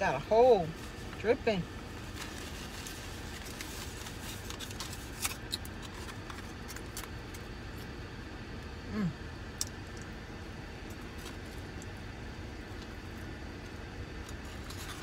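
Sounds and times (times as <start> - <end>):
low hum: 0.0 - 15.0
aluminium foil crinkling: 2.0 - 7.4.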